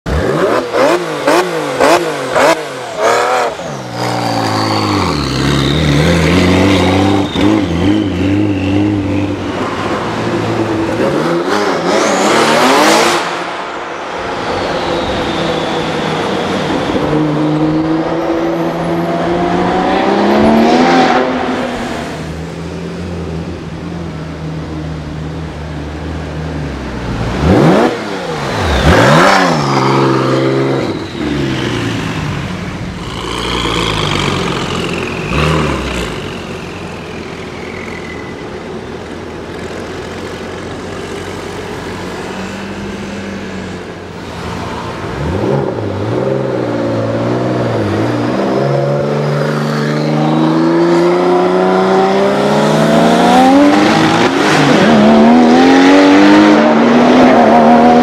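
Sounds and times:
sports car engine revving: 0.1s - 13.5s, 27.2s - 38.0s
car accelerating hard: 44.3s - 58.0s.

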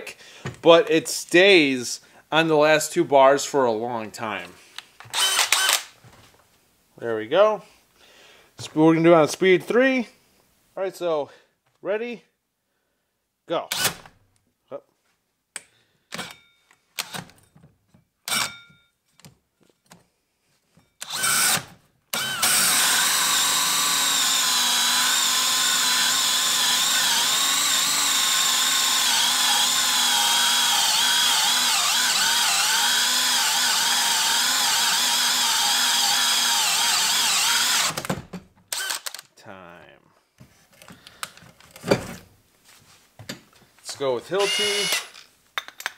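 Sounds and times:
drill with hole saw cutting wood: 5.1s - 5.9s, 21.0s - 38.1s, 38.7s - 39.2s, 44.4s - 45.2s.

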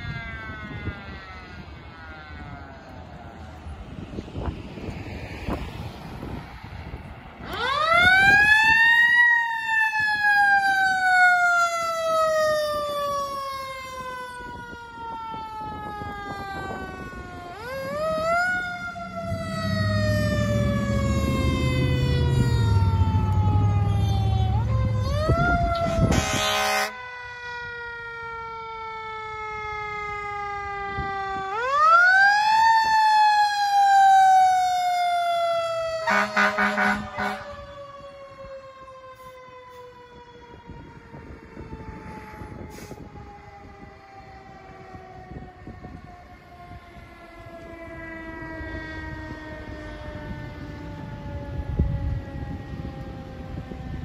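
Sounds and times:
mechanical sirens wailing: 0.0s - 54.0s
heavy truck engine rumble: 15.6s - 26.4s
air horn blasts: 25.0s - 27.0s, 36.0s - 37.7s.

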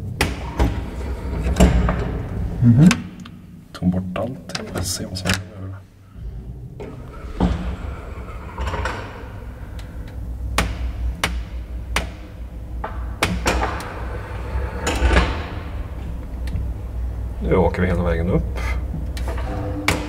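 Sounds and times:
lift knocks and clanks: 0.0s - 3.5s, 6.2s - 17.0s
lift motor hum: 0.0s - 3.8s, 4.5s - 20.0s.

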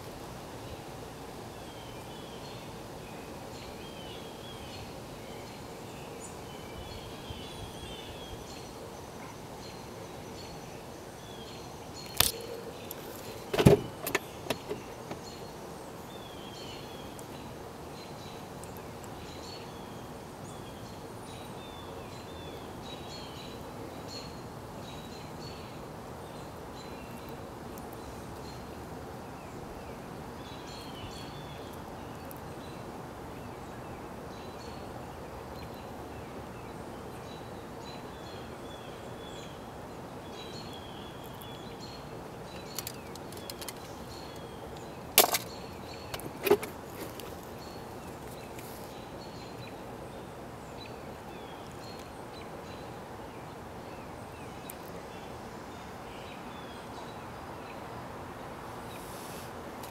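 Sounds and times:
small birds chirping: 0.0s - 58.0s
steady background noise: 0.0s - 59.9s
sharp knocks: 13.5s - 15.2s.

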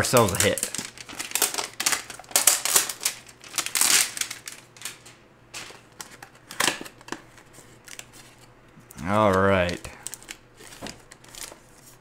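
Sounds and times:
cardboard and tape crackling: 0.0s - 8.5s, 9.1s - 12.0s.

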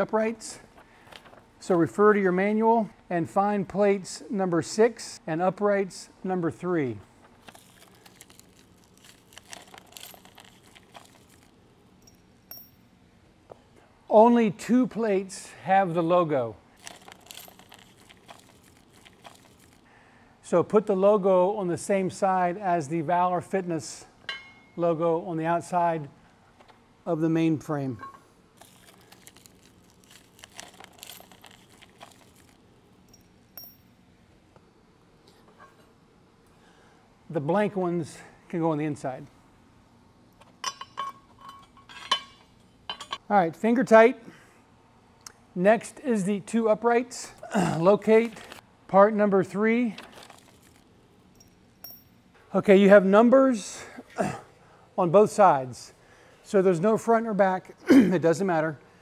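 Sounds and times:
handling clicks and rustling: 7.2s - 12.8s, 16.8s - 19.9s, 28.0s - 33.9s, 49.9s - 52.2s
ringing metal clink: 12.0s - 12.9s, 24.3s - 24.8s, 33.1s - 34.0s, 51.3s - 52.2s.

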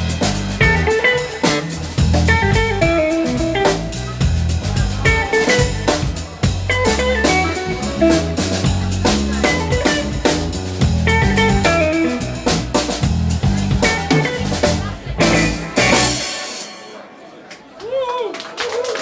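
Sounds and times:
electric bass line: 0.0s - 16.4s
electric guitar melody: 0.0s - 16.7s
drum kit with cymbals: 0.0s - 17.1s.

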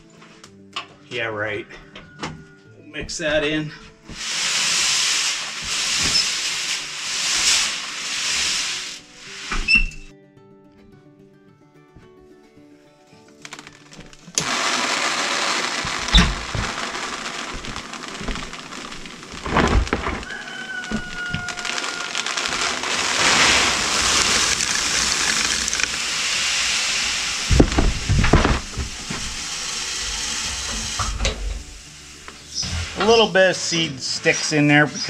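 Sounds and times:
seed pouring into plastic tub: 4.1s - 10.1s, 13.5s - 34.9s.

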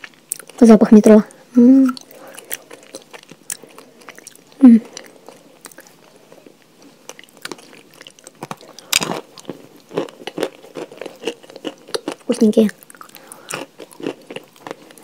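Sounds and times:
chewing with wet mouth clicks: 0.0s - 0.6s, 2.0s - 15.0s
person humming: 1.6s - 2.0s, 4.6s - 4.9s.

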